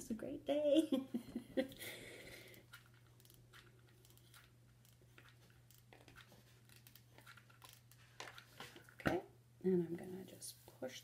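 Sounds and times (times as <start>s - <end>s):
rustles of handling craft materials: 2.4s - 9.2s.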